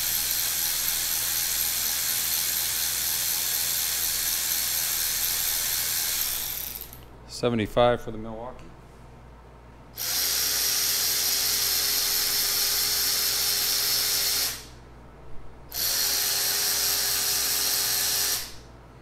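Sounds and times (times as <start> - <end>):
cordless ratchet motor whirring: 0.0 - 7.1, 10.0 - 14.7, 15.7 - 18.6.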